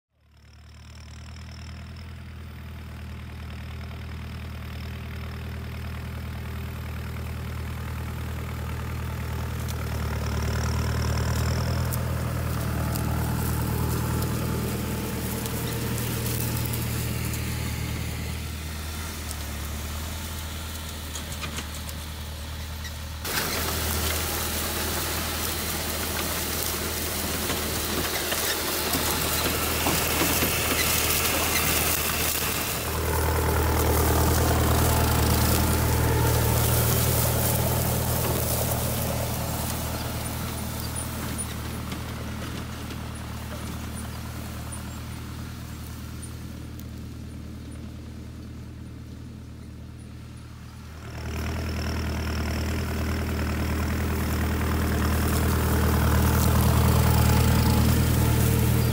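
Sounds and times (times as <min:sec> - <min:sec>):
tractor diesel engine: 0:00.1 - 0:58.9
planter clattering: 0:07.0 - 0:45.3, 0:51.1 - 0:58.9.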